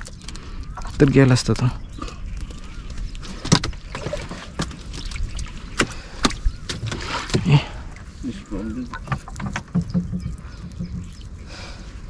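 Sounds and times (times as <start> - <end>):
water splashing and dripping: 0.0 - 1.7, 2.4 - 8.2.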